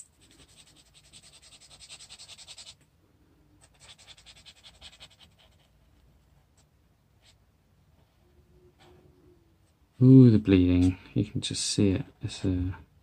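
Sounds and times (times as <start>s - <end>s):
marker scribbling on paper: 0.0s - 2.8s, 3.6s - 5.8s.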